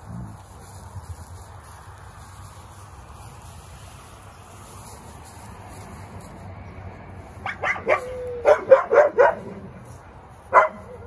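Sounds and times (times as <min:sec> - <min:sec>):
dog barking and yipping: 0:07.4 - 0:09.8, 0:10.5 - 0:11.0.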